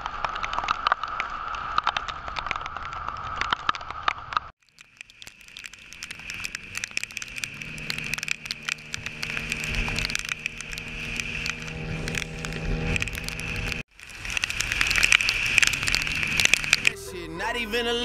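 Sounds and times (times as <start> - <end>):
raindrops striking the camera: 0.0 - 17.0
motorcycle engine running: 6.4 - 13.8, 14.7 - 17.0.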